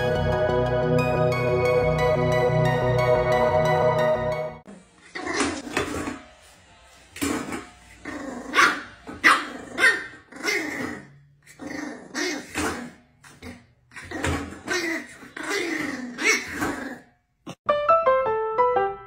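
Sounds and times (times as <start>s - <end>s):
dog barking: 8.5s - 10.6s.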